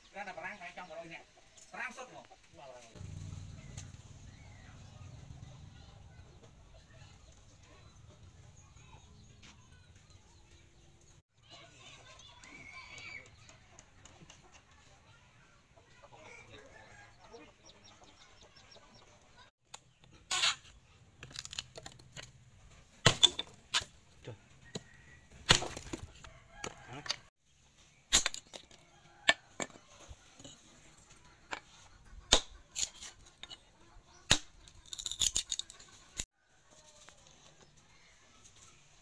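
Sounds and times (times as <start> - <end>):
axe chopping wood: 23.0 - 24.0, 24.7 - 26.8, 32.3 - 32.9, 34.3 - 34.6.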